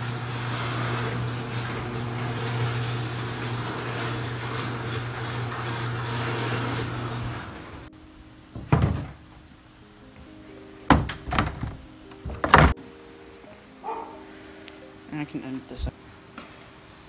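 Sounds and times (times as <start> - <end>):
garage door opener motor hum: 0.0 - 7.9
garage door rattling: 0.0 - 7.9, 8.6 - 9.3, 10.9 - 12.8.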